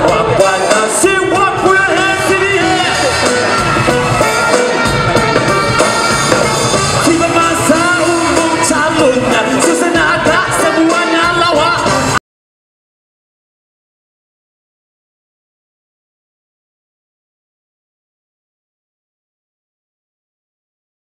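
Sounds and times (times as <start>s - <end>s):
man singing into a microphone: 0.0s - 3.3s, 7.0s - 12.2s
backing music: 0.0s - 12.2s.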